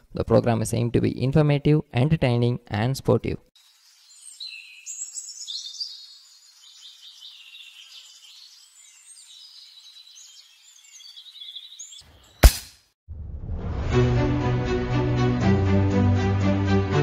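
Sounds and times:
small birds chirping and singing: 3.6s - 12.4s
sharp loud crack: 12.4s - 14.1s
low whoosh: 13.1s - 15.1s.

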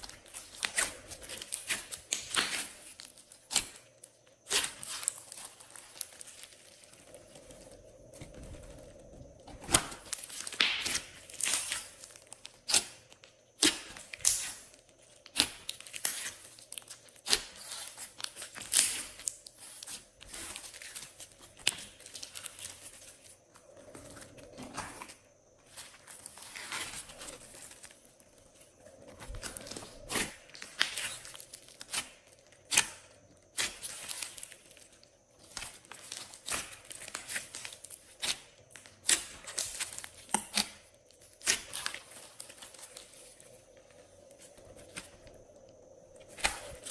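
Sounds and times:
sticky crackles and pops: 0.0s - 24.6s
slime being kneaded by hand: 0.0s - 45.4s.

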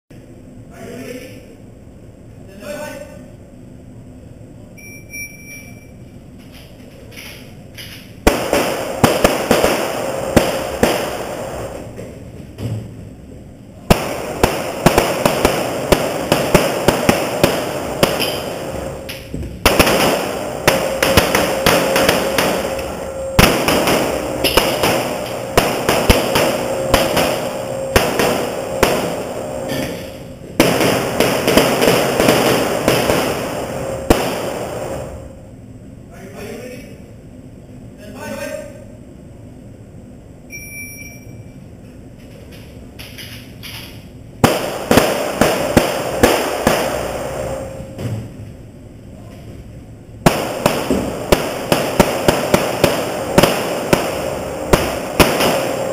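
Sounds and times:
pistol shots echoing indoors: 7.1s - 11.9s, 13.8s - 35.4s, 43.1s - 48.0s, 50.2s - 55.9s.

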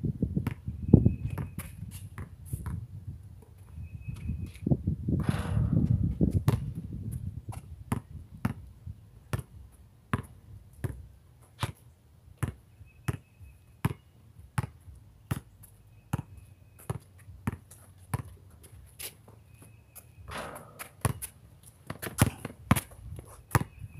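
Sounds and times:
basketball bouncing on concrete: 0.4s - 2.8s, 5.2s - 8.7s, 9.3s - 11.8s, 12.4s - 15.5s, 16.1s - 18.8s, 19.6s - 23.9s.

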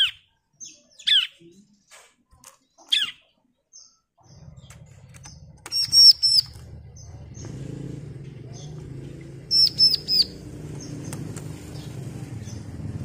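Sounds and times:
bird chirping: 0.0s - 13.0s
high clear bird notes: 5.2s - 7.6s, 9.5s - 12.6s.

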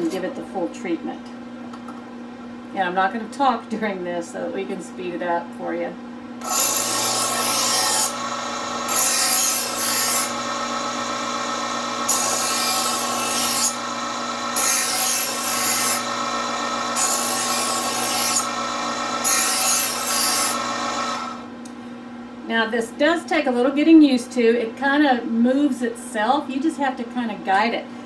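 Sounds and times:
knife grinding in sharpener: 6.4s - 21.4s
knife sharpener motor hum: 6.4s - 21.5s.

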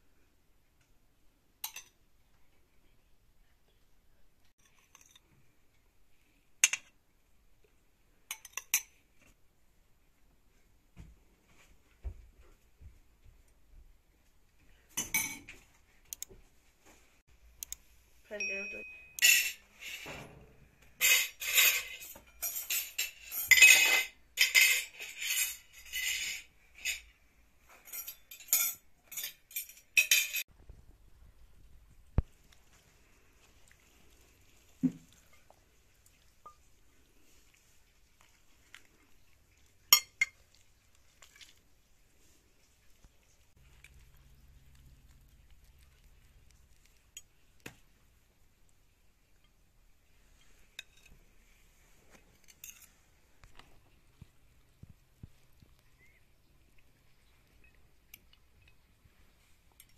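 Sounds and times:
cutlery clinking against plates: 1.6s - 2.0s, 4.6s - 5.3s, 8.3s - 9.0s, 14.9s - 15.6s, 18.8s - 20.2s, 21.0s - 30.5s, 39.9s - 40.4s, 52.3s - 53.0s
spoon clinking against glass bowl: 8.3s - 9.0s, 18.4s - 19.6s, 39.9s - 40.4s
spoon scraping: 18.8s - 20.1s, 21.0s - 30.4s, 50.2s - 53.0s.

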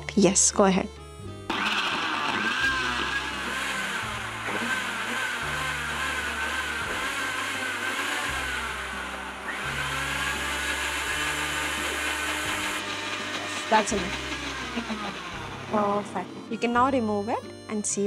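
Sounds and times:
blender motor whining: 1.5s - 17.5s.

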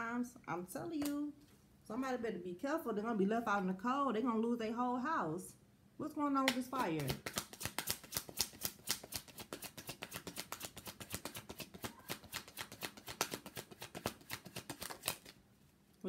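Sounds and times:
cards being shuffled: 6.7s - 15.4s.

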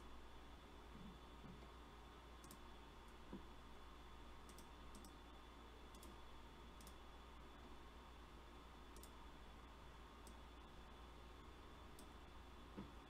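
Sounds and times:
low electrical hum: 0.0s - 13.0s
computer mouse clicks: 2.4s - 3.4s, 4.4s - 5.2s, 5.9s - 6.2s, 6.8s - 7.0s, 8.9s - 9.2s, 10.2s - 10.4s, 11.9s - 12.2s.

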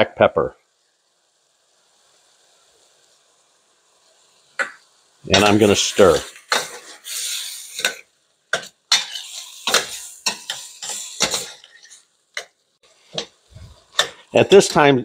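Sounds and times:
food hissing in a pan: 0.5s - 15.0s
spoon stirring in a frying pan: 4.0s - 15.0s.

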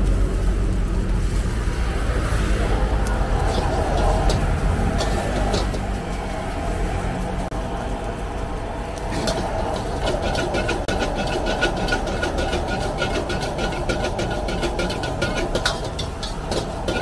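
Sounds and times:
gas burner rushing: 0.0s - 17.0s
metal ladle scraping a wok: 3.2s - 7.5s, 9.1s - 17.0s.

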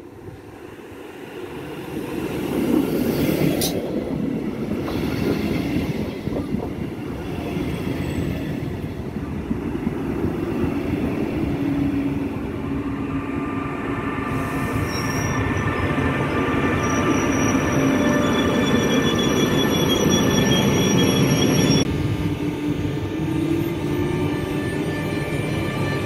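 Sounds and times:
locomotive whining tones: 14.3s - 21.9s.

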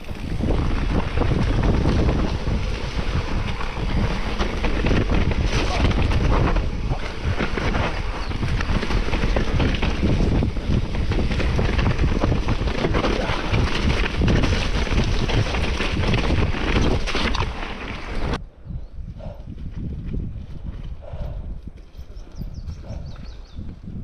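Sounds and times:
mountain bike clattering on trail: 0.0s - 18.4s
wind buffeting microphone: 0.0s - 24.0s.

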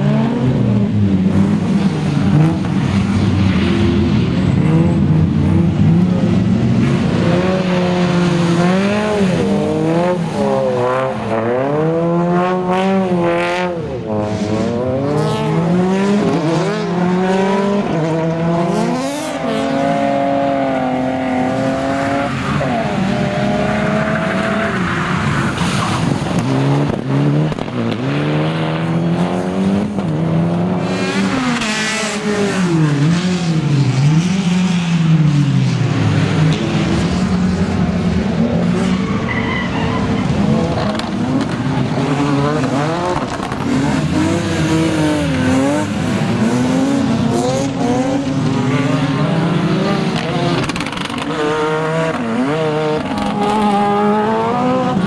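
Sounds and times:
rally car engines revving: 0.0s - 55.0s
tyre squeal: 38.7s - 40.6s.

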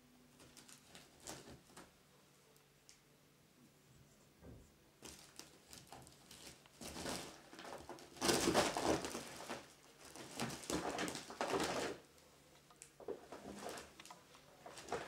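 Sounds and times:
crinkly bag rustling: 0.4s - 1.9s, 5.0s - 12.2s, 13.0s - 15.0s.

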